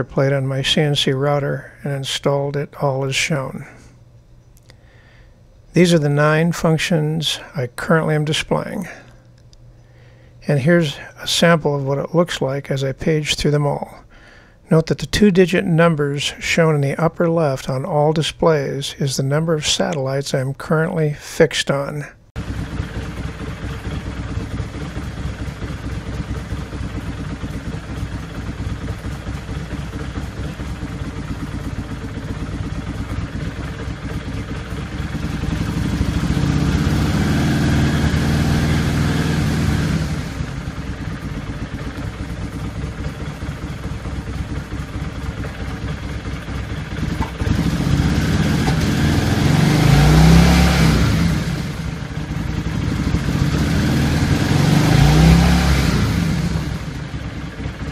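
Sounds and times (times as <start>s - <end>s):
motorcycle engine idling and revving: 22.4s - 57.9s.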